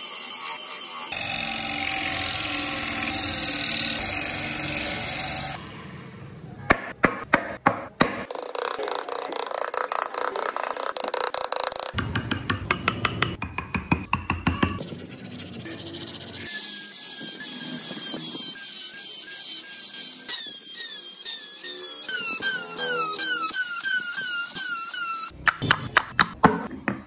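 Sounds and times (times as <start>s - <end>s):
turning tool scraping wood: 0.0s - 5.6s, 14.8s - 25.3s
wood lathe motor hum: 0.0s - 5.6s.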